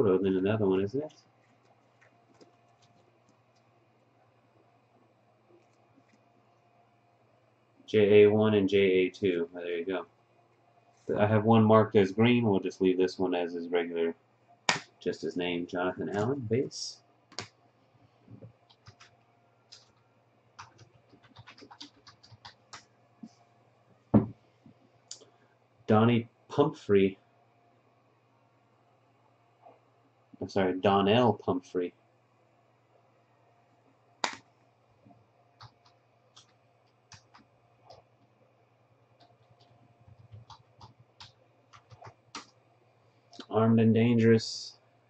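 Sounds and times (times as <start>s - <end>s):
computer keyboard typing: 1.7s - 3.6s, 18.6s - 20.0s, 20.6s - 22.9s, 35.6s - 38.0s, 39.2s - 42.5s.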